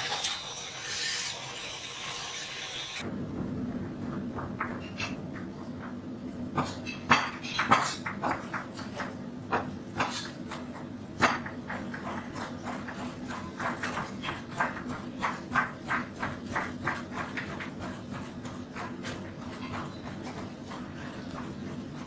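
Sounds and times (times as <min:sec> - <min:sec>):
steady low hum: 0:03.0 - 0:22.0
knives mincing meat on board: 0:06.6 - 0:21.8.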